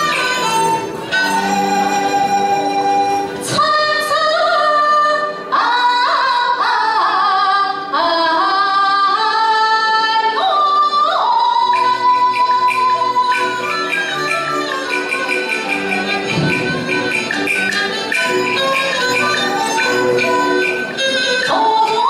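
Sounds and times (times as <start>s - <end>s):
instrumental accompaniment: 0.0s - 22.0s
woman singing opera: 3.4s - 13.7s, 21.3s - 22.0s.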